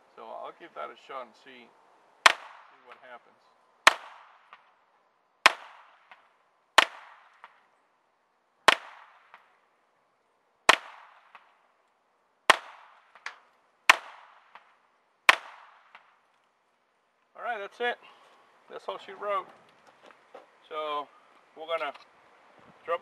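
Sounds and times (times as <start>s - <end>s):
pistol shots: 2.2s - 3.1s, 3.9s - 4.8s, 5.4s - 7.6s, 8.7s - 9.6s, 10.7s - 11.6s, 12.5s - 16.2s
fainter crack after each shot: 2.2s - 7.8s, 8.6s - 9.6s, 10.6s - 16.6s.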